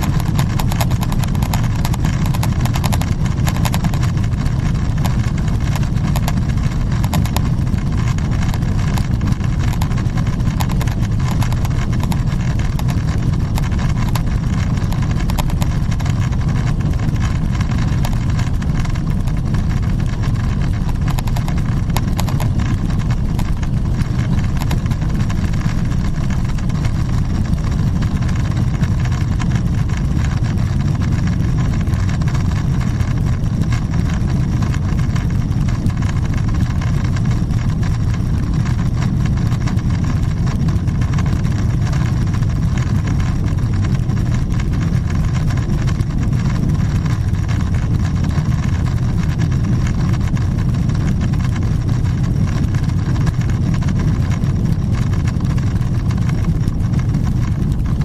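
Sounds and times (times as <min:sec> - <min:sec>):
jet engine rumble in cabin: 0:00.0 - 0:58.0.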